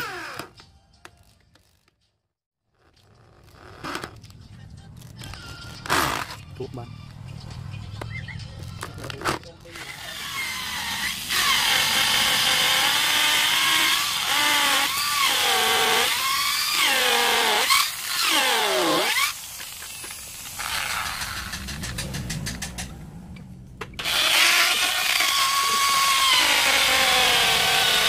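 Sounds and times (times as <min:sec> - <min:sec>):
electric drill boring into wood: 0:09.8 - 0:21.4, 0:24.0 - 0:28.0.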